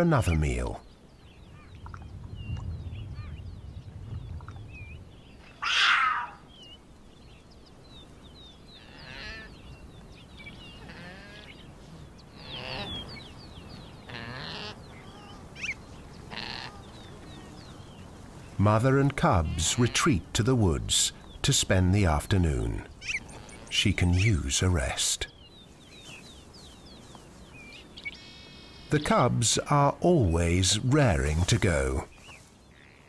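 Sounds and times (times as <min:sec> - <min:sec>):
harsh animal call: 0:05.6 - 0:06.4
cubs chirping: 0:08.8 - 0:32.5.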